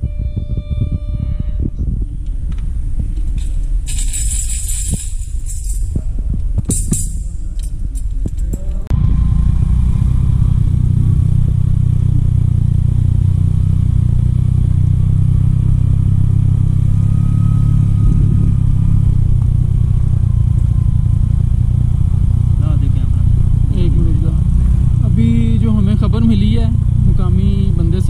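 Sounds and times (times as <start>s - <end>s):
tambourine jingling: 3.5s - 6.0s
motorcycle engine cruising on gravel: 8.9s - 28.0s.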